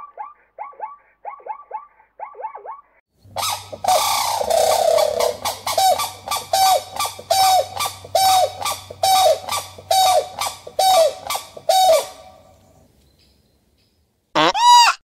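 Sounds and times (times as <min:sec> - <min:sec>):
crane honking calls: 0:03.4 - 0:12.7.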